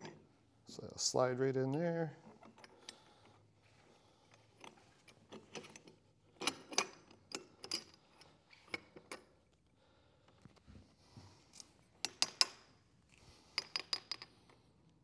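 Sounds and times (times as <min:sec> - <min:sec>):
metal clicks and clinks: 0:04.6 - 0:09.3.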